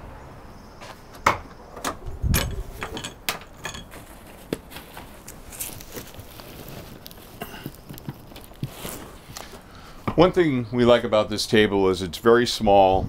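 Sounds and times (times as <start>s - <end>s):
sharp clicks and knocks: 1.2s - 5.1s.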